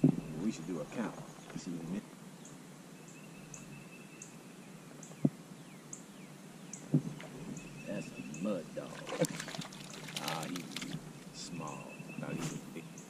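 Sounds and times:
dull knocks: 0:06.9 - 0:07.7.

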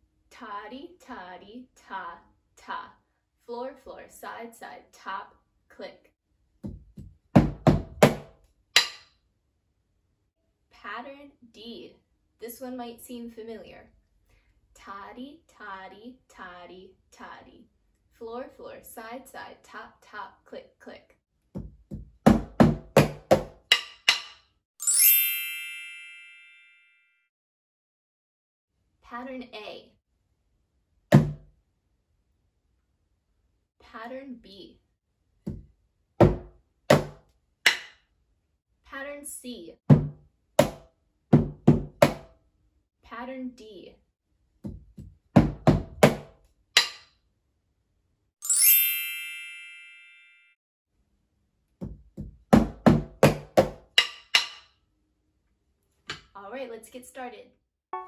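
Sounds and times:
sticks drumming on cardboard box: 0:06.6 - 0:08.3, 0:21.6 - 0:24.3, 0:41.4 - 0:42.3, 0:44.6 - 0:46.3, 0:51.8 - 0:53.8
bright chime ringing: 0:24.8 - 0:27.0, 0:48.4 - 0:50.6.

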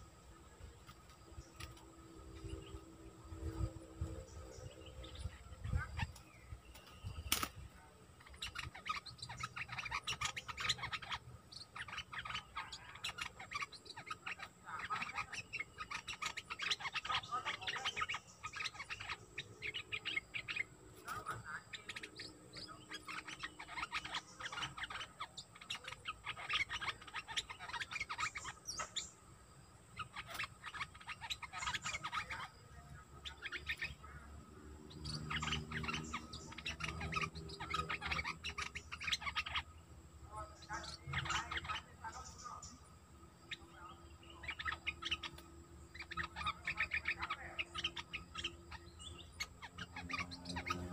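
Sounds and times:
bulbul chirping: 0:40.3 - 0:50.9.

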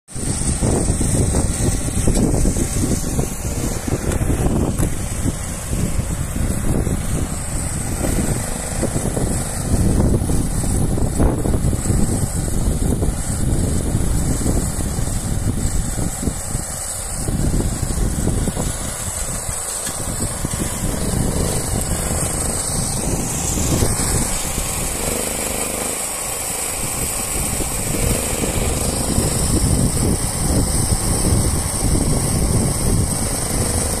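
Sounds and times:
petrol generator running: 0:00.1 - 0:34.0
wind on microphone: 0:00.1 - 0:34.0.

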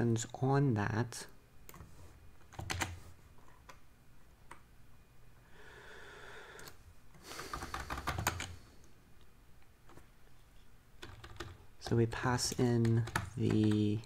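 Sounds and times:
keyboard typing: 0:01.7 - 0:03.8, 0:07.4 - 0:08.6, 0:11.0 - 0:11.7, 0:12.4 - 0:14.0
soft breathy hiss: 0:05.4 - 0:09.0.

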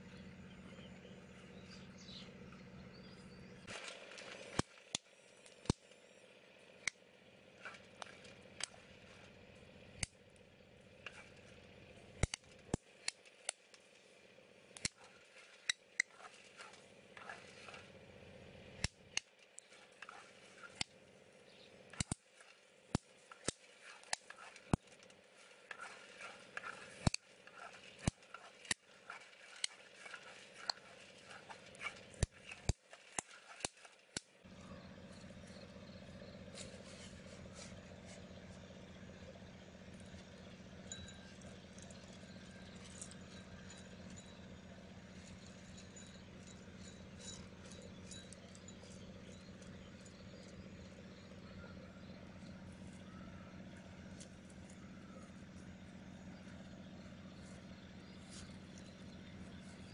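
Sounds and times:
low steady hum: 0:00.0 - 0:59.9
stick stirring seeds: 0:14.7 - 0:17.9, 0:18.8 - 0:21.0, 0:21.9 - 0:34.3.

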